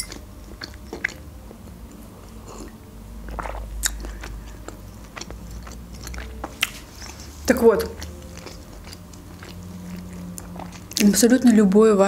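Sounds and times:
sipping and swallowing: 0:02.4 - 0:11.1.

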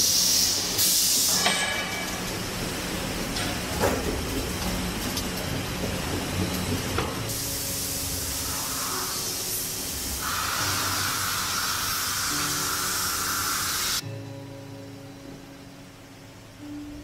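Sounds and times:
loud air hiss: 0:00.0 - 0:02.2, 0:07.3 - 0:14.0
machinery humming: 0:00.0 - 0:17.0.

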